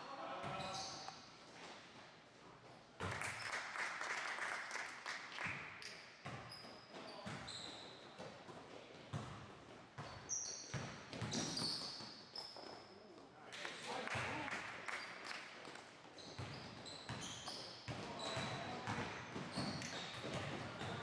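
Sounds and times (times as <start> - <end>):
sneakers squeaking on court: 0.4 - 1.9, 5.8 - 9.4, 10.0 - 13.0, 16.1 - 21.0.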